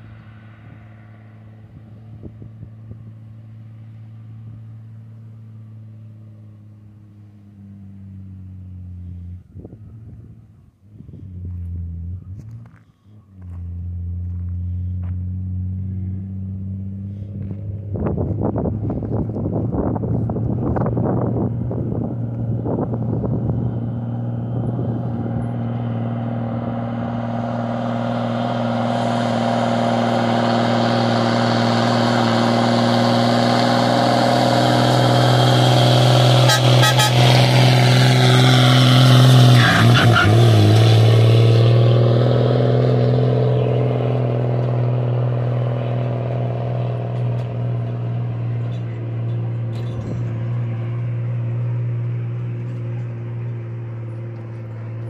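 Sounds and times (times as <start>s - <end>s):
diesel truck engine passing: 0.0s - 55.0s.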